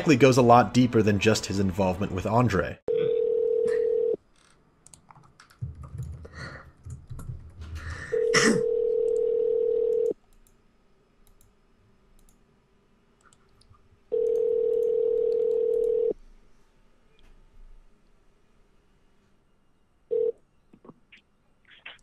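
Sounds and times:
phone ringback tone: 2.9s - 4.2s, 8.1s - 10.1s, 14.1s - 16.1s, 20.1s - 20.3s.

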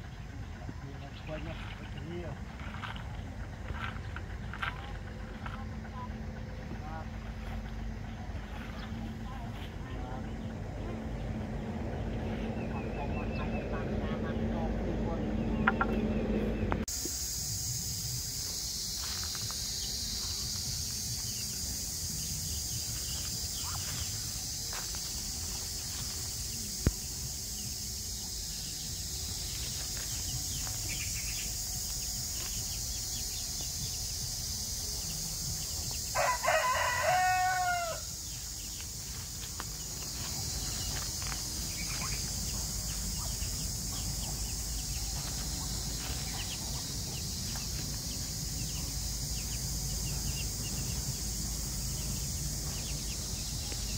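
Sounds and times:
steady high-pitched hiss: 16.8s - 53.9s
rooster crowing: 36.0s - 38.4s.

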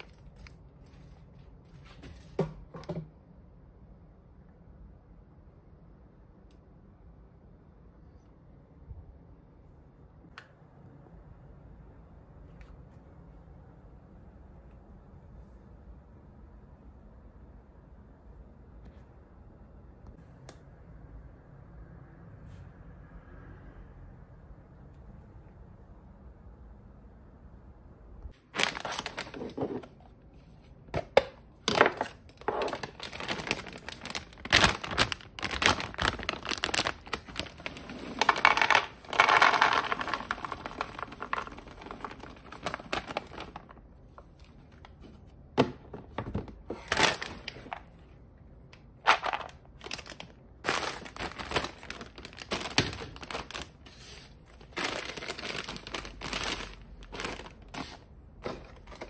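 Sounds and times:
plastic packaging crinkling: 0.0s - 2.4s, 28.4s - 30.0s, 31.0s - 45.1s, 46.2s - 48.0s, 49.0s - 59.0s
peanuts pouring into container: 37.6s - 42.1s
plastic containers clicking: 38.2s - 43.7s, 49.0s - 53.7s.

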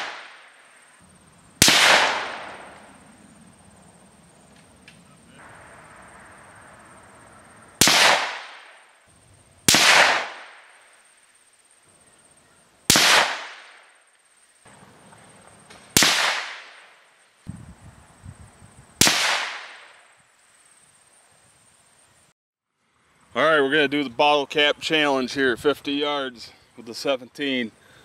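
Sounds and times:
rifle shots: 0.0s - 0.6s, 1.6s - 3.0s, 7.8s - 8.8s, 9.7s - 10.8s, 12.9s - 13.8s, 15.9s - 17.0s, 19.0s - 20.0s.

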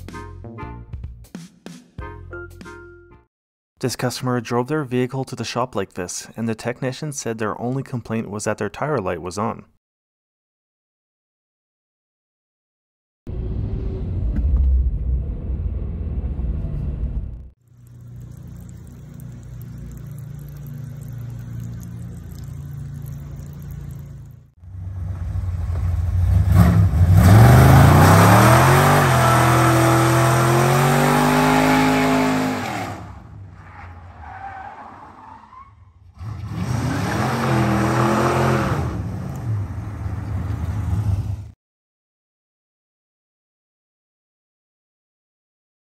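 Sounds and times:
engine running at low revs: 19.4s - 33.5s
car engine revving in burnout: 24.9s - 41.4s.

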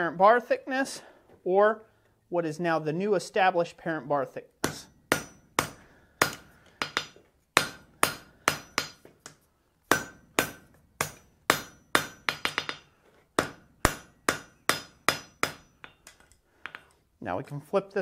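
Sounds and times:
hammer striking steel on anvil: 4.6s - 16.8s.

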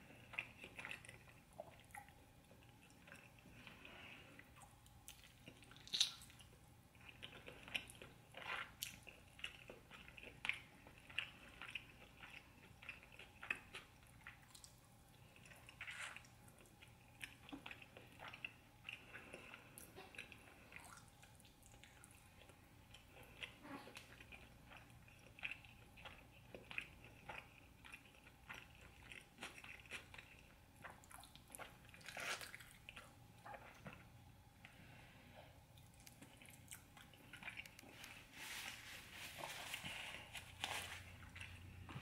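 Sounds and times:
person chewing and sucking meat: 0.0s - 34.8s, 35.6s - 42.0s.

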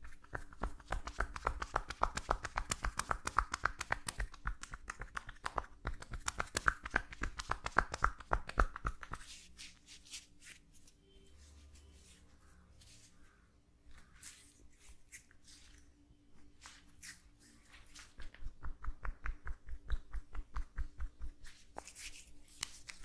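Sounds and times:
hands tapping shoulder: 0.0s - 9.4s, 18.0s - 21.9s.

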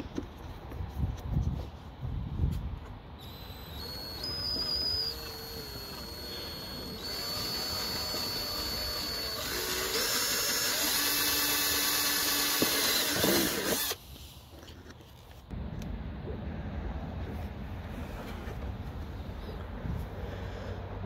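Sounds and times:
cordless drill boring through plastic: 3.2s - 14.0s.

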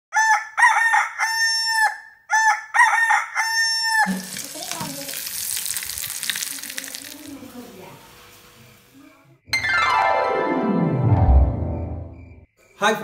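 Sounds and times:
rooster crowing: 0.1s - 4.4s
onion frying in a pan: 4.0s - 9.1s.

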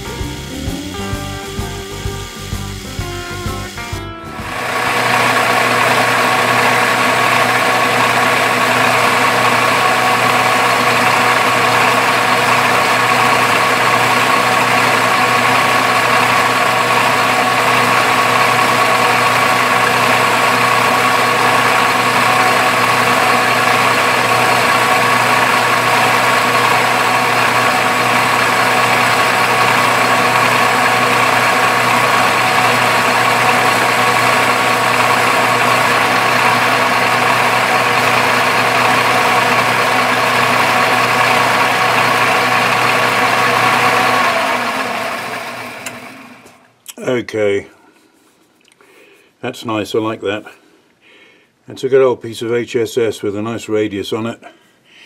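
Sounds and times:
metal lathe motor humming: 4.3s - 46.6s.

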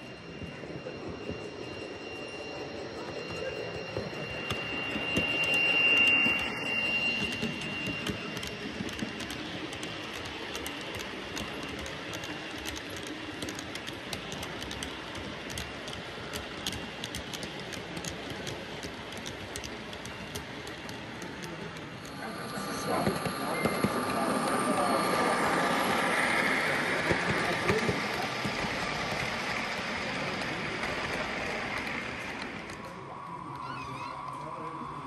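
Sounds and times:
model locomotive high tone: 0.0s - 35.0s
wheels clicking over rail joints: 7.2s - 22.1s.

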